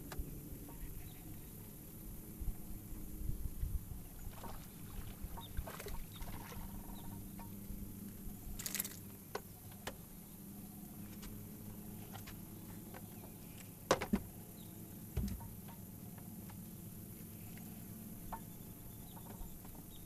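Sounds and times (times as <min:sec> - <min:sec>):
low rumbling on microphone: 0:00.0 - 0:08.6
steady low hum: 0:00.0 - 0:20.0
short water splash: 0:04.3 - 0:06.7
sharp tackle clicks: 0:08.6 - 0:09.1.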